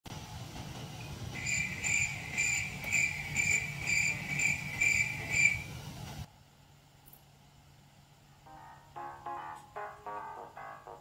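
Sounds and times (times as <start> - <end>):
low steady hum: 0.1 - 11.0
cricket chirping: 1.4 - 5.6.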